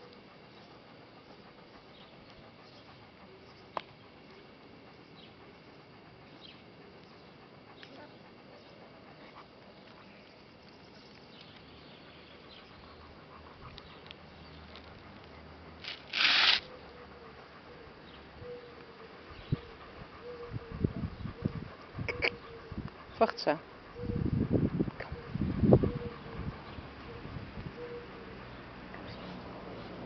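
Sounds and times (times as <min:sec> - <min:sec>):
puppies rustling and clicking: 0:12.4 - 0:16.5.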